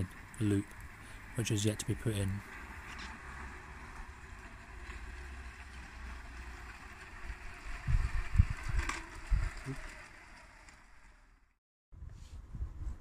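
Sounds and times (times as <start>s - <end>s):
gusts buffeting microphone: 7.1s - 9.9s, 12.0s - 13.0s
wind hiss on microphone: 12.0s - 13.0s.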